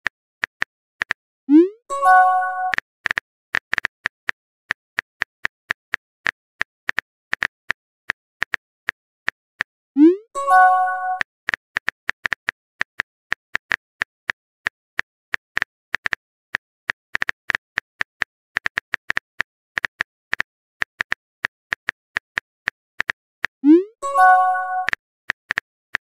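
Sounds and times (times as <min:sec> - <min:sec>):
message sent pop and chime: 0:01.5 - 0:02.8, 0:10.0 - 0:11.2, 0:23.7 - 0:24.9
phone keyboard typing clicks: 0:24.1 - 0:25.6.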